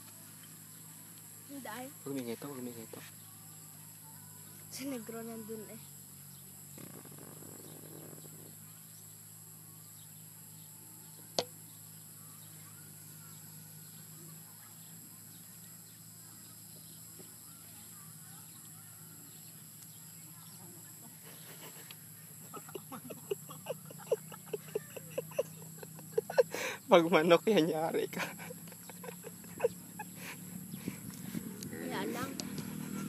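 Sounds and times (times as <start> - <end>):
faint high hum: 7.5 - 33.0.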